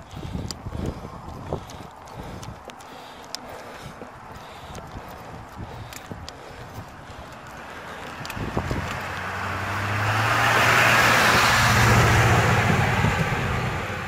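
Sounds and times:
pickup truck passing by: 0:07.4 - 0:14.0.

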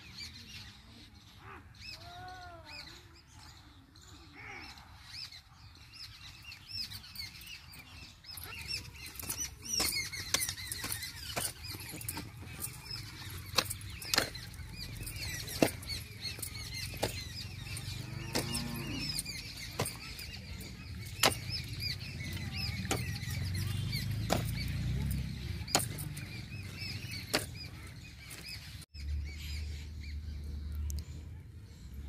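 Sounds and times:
small birds chirping: 0:00.0 - 0:32.0
hoe chopping into dry soil: 0:09.2 - 0:28.6.

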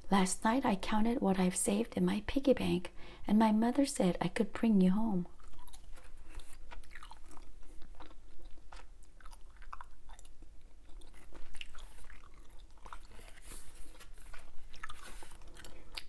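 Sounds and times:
gum chewing smacks and clicks: 0:05.3 - 0:16.0.

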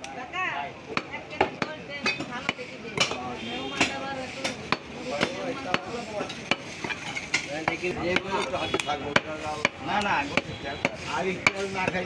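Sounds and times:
people talking: 0:00.0 - 0:12.0
knife chopping meat on wood: 0:03.8 - 0:12.0.

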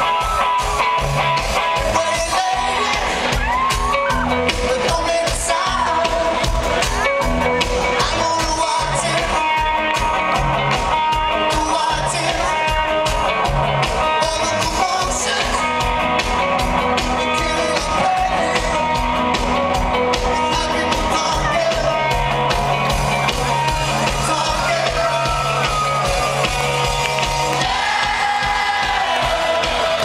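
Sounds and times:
drum beat: 0:00.0 - 0:30.0
live rock band playing: 0:00.0 - 0:30.0
person singing lead: 0:01.8 - 0:07.0.

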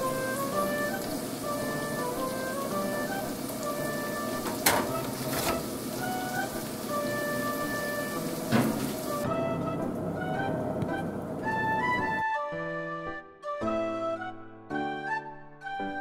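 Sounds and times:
steady hiss: 0:00.0 - 0:09.2
light background music: 0:00.0 - 0:16.0
metal baking tray clacking: 0:04.4 - 0:05.7, 0:08.5 - 0:09.0.

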